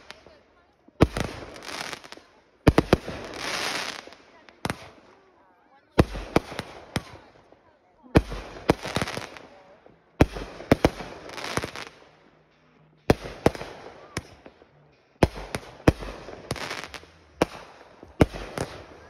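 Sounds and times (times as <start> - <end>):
firework bangs: 1.0 - 5.0, 6.0 - 7.3.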